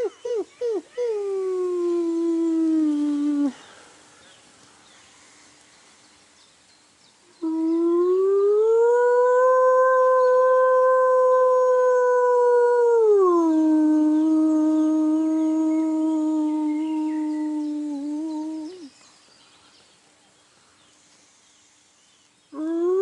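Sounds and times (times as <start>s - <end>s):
man imitating wolf howl: 0.0s - 3.6s, 7.4s - 18.9s, 22.6s - 23.0s.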